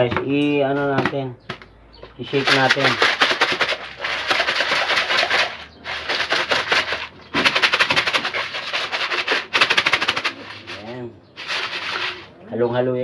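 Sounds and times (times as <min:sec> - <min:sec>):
feed rattling in plastic container: 0:02.3 - 0:12.3.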